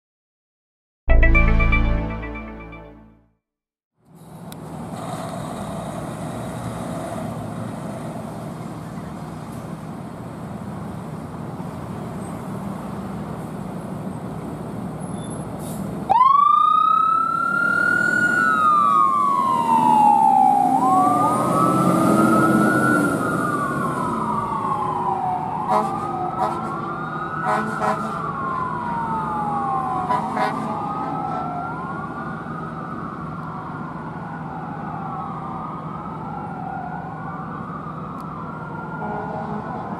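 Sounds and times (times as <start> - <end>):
fire engine engine running: 15.6 - 39.9
wailing siren: 16.1 - 39.9.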